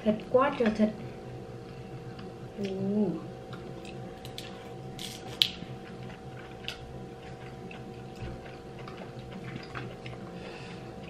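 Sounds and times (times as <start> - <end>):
crab shells cracking: 3.8 - 7.9.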